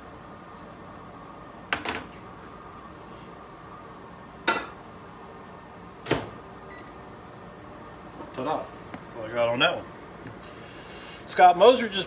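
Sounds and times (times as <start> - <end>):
microwave door opening and shutting: 6.0 - 6.4.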